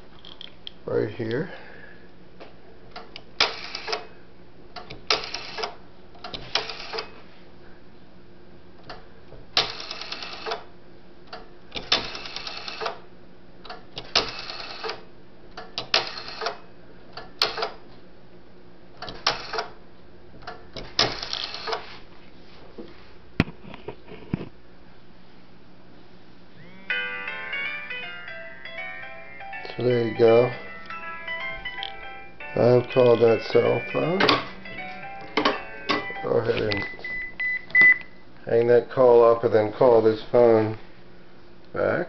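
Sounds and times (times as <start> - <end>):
rotary dial clicking and whirring: 3.0 - 4.1, 4.8 - 7.1, 9.6 - 10.7, 11.3 - 13.0, 13.6 - 15.0, 15.6 - 16.6, 19.0 - 19.8, 20.4 - 21.8.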